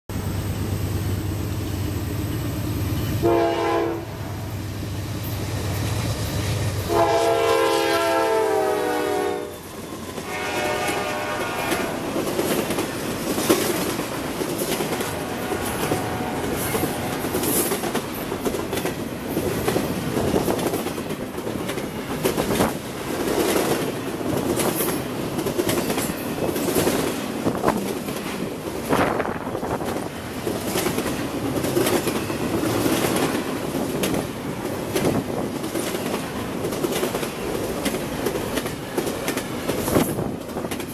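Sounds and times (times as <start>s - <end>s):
train air horn blasts: 3.2s - 4.5s, 6.8s - 12.2s, 14.8s - 17.4s
train wheels clacking on rails: 5.2s - 40.9s.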